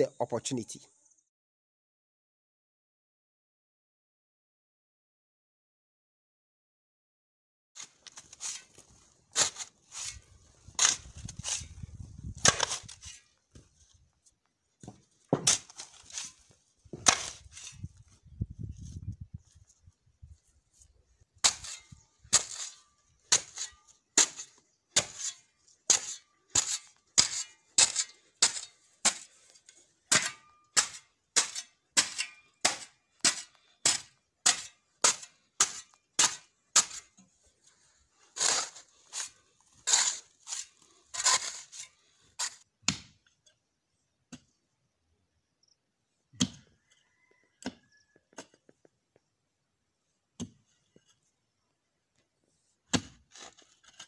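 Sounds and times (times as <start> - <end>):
metal tool chopping soil: 7.8 - 13.6, 14.8 - 17.9, 21.4 - 37.4, 38.3 - 43.3, 46.4 - 46.7, 50.4 - 50.7, 52.9 - 54.0.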